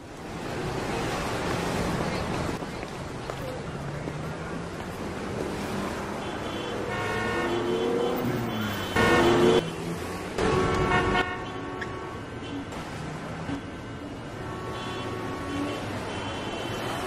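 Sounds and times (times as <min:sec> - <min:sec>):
street noise: 0:00.0 - 0:17.0
car horn honking: 0:06.2 - 0:09.7, 0:10.4 - 0:12.6, 0:14.4 - 0:17.0.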